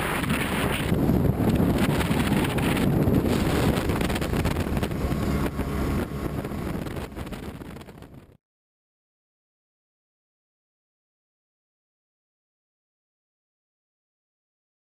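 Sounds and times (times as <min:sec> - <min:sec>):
boat motor running: 0:00.0 - 0:08.4
wind noise on microphone: 0:00.0 - 0:08.4.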